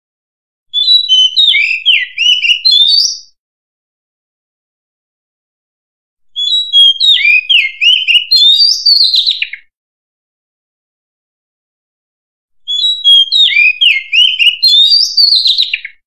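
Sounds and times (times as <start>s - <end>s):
bird singing whistles and warbles: 0.7s - 3.4s, 6.3s - 9.7s, 12.6s - 16.0s.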